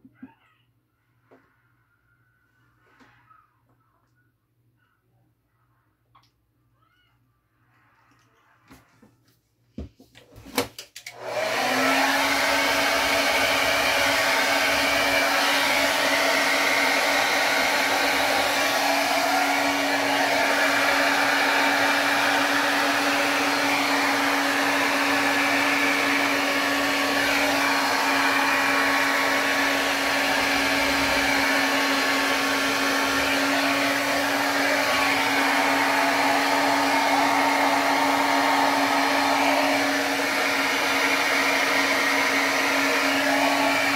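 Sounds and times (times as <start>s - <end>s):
hair dryer blowing: 10.6s - 43.9s.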